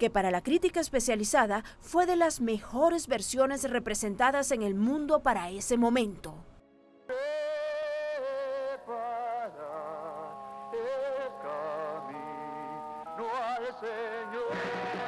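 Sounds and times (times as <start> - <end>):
layer of noise: 7.1 - 15.0
singing with vibrato: 7.1 - 15.0.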